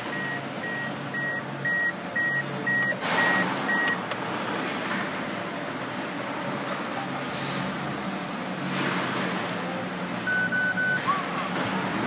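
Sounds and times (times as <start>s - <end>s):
dashboard warning chime beeping: 0.0s - 4.2s, 10.3s - 11.2s
car engine cranking and starting: 2.2s - 4.3s
sharp clicks: 3.8s - 4.2s.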